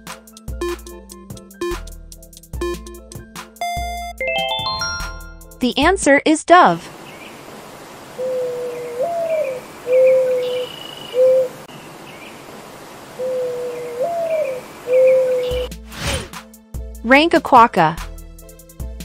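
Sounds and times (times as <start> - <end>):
mourning dove cooing: 7.2 - 15.7
faint bird chirps: 8.2 - 12.4, 13.1 - 15.7.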